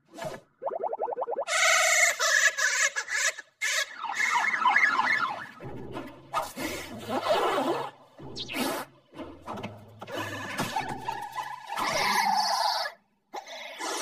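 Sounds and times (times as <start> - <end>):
fast warbling squeal: 3.6 - 5.6.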